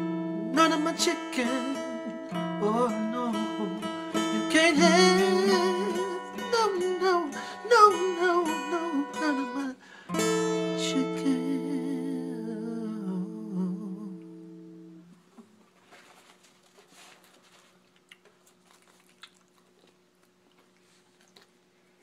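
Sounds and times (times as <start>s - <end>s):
acoustic guitar strumming: 0.0s - 15.1s
man singing: 0.4s - 14.4s.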